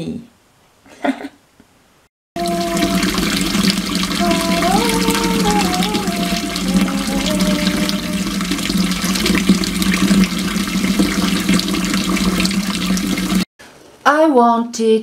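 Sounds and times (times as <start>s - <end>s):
tap water running into cup: 2.4s - 13.4s.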